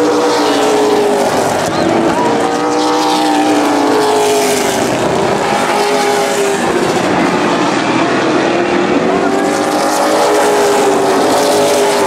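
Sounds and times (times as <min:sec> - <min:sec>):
race car engines at high revs: 0:00.0 - 0:12.0.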